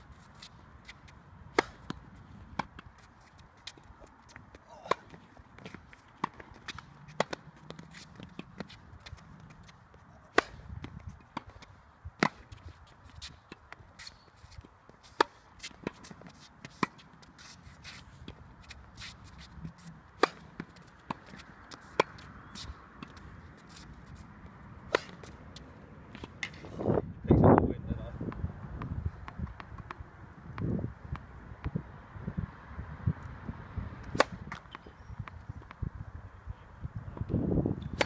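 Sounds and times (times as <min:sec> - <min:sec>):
tennis ball struck by racket: 0:00.4 - 0:12.6, 0:15.1 - 0:24.0, 0:24.8 - 0:26.7, 0:34.0 - 0:35.8, 0:37.8 - 0:38.0
shoe scuffs on hard court: 0:02.9 - 0:11.6, 0:12.2 - 0:24.3.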